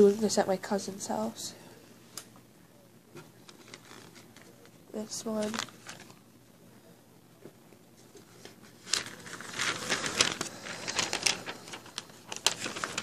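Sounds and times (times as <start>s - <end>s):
paper posters rustling and crinkling: 3.2s - 6.2s, 8.0s - 13.0s.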